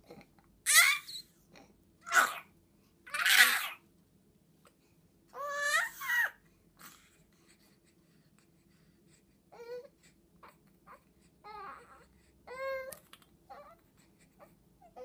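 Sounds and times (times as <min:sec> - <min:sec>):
baby vocal sounds: 0:00.0 - 0:02.5, 0:03.1 - 0:03.8, 0:05.4 - 0:07.1
baby crying: 0:00.7 - 0:01.2, 0:03.1 - 0:03.8, 0:05.4 - 0:06.4, 0:10.9 - 0:12.9.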